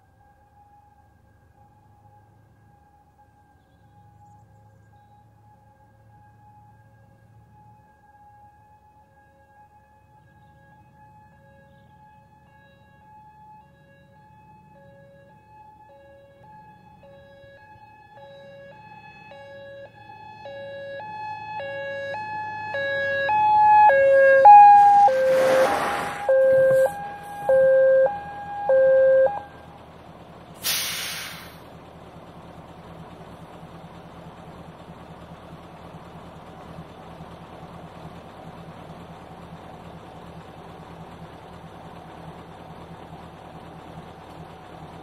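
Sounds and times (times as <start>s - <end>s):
two-tone fire engine siren: 0.0s - 45.0s
truck engine idling: 26.0s - 45.0s
air brakes hissing: 30.6s - 31.7s.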